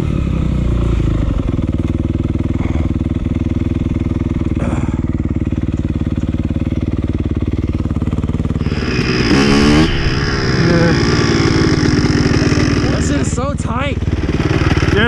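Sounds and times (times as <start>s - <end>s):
dirt bike engine chugging: 0.0s - 15.0s.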